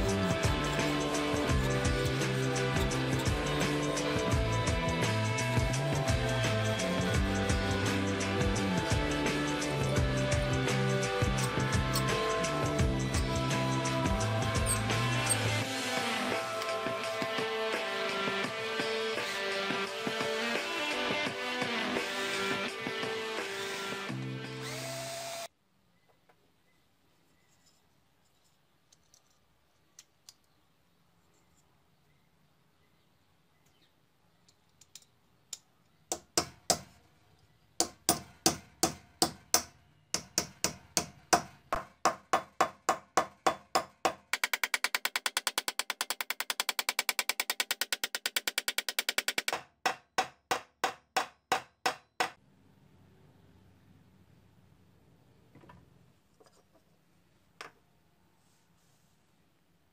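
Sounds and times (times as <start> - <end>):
hammer tapping on metal: 37.8 - 52.4.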